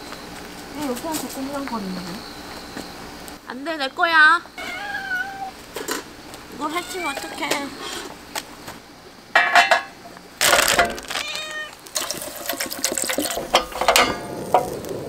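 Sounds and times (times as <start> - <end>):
cat meowing: 4.6 - 5.6, 6.6 - 7.6, 11.1 - 11.8
water pouring into metal tin: 11.8 - 14.9.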